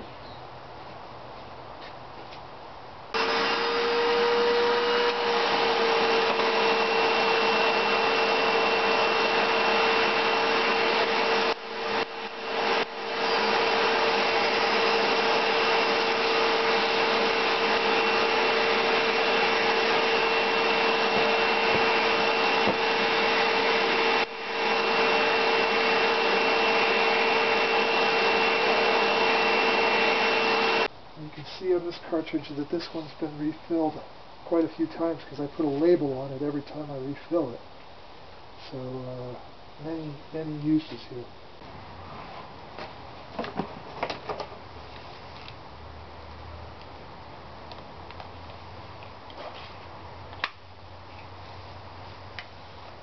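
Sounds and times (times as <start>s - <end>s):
vacuum cleaner whining: 3.1s - 30.9s.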